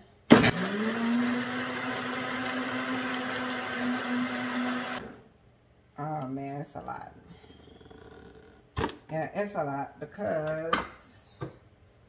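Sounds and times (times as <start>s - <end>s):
blender motor hum: 0.4s - 5.2s.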